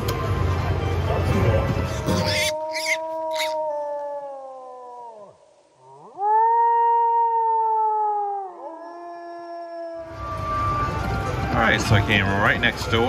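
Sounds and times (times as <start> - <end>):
wolf howling: 1.9 - 11.0.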